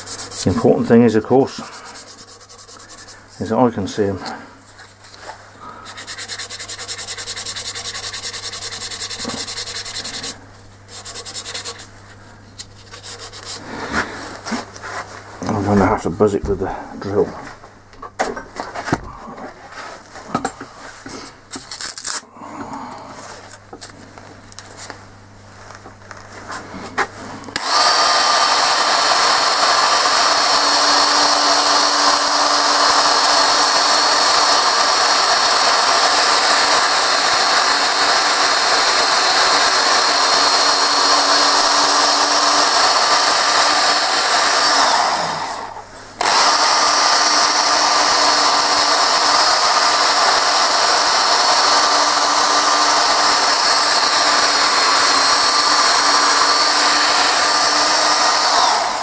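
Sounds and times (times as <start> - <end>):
electric drill sanding wood: 0.0 - 3.6, 5.7 - 11.9, 12.7 - 14.0, 27.5 - 59.0.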